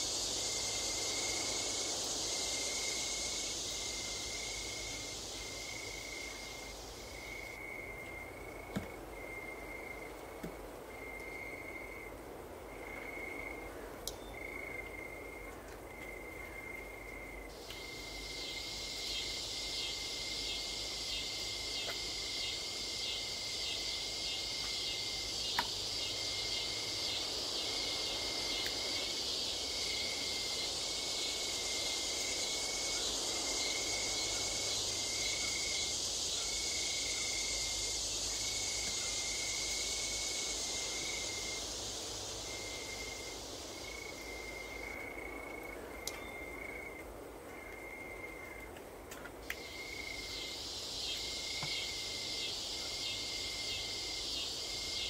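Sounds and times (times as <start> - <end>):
insect rapidly pulsing buzz: 0.0 - 7.8, 17.6 - 45.7, 49.6 - 55.0
insect high-pitched trill: 0.0 - 8.6, 17.2 - 47.0, 49.5 - 55.0.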